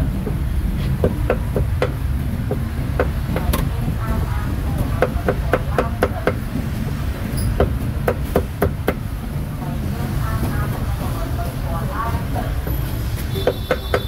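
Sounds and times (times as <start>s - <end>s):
low rumble: 0.0s - 5.6s.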